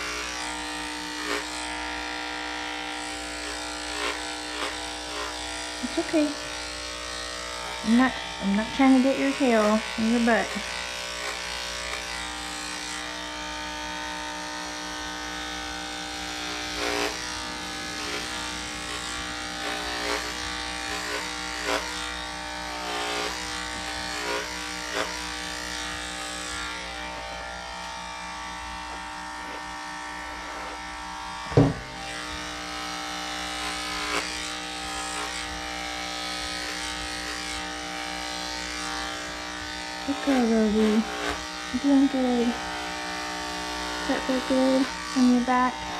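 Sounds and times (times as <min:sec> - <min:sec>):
electric clippers humming: 0:00.0 - 0:45.9
sharp knock: 0:31.5 - 0:31.9.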